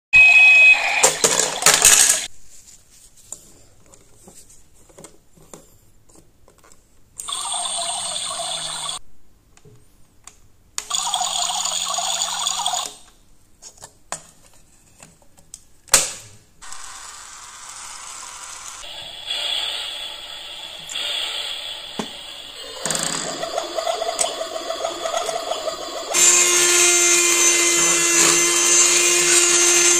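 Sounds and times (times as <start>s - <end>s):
toy coffee maker pump: 7.2s - 9.0s, 10.9s - 13.0s, 22.0s - 29.9s
toy stove soft steady sound: 16.6s - 22.8s.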